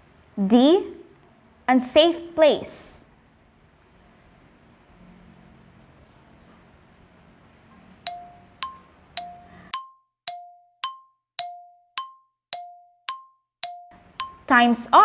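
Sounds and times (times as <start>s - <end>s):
alternating chime dings: 8.1s - 14.5s.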